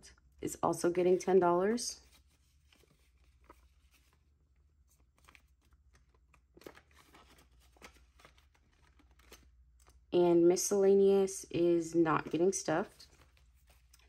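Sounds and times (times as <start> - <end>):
paper money being handled: 1.0 - 10.0, 12.2 - 14.0.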